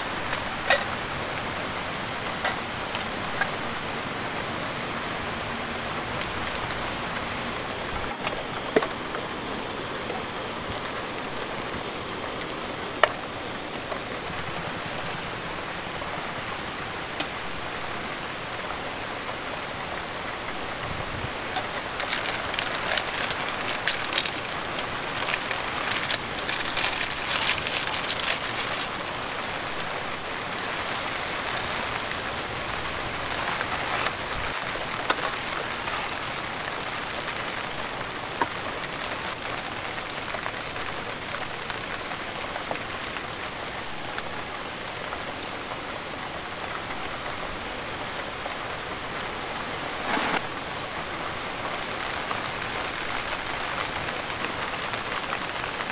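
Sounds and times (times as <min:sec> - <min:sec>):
light rain on a tent: 0:00.0 - 0:55.9
fine crackling: 0:21.2 - 0:30.3, 0:49.7 - 0:50.6.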